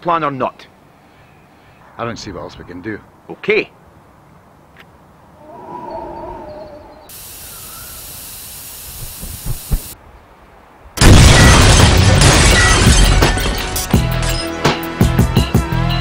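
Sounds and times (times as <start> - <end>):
steady hiss: 7.1 - 11.0
very loud blast: 11.0 - 12.8.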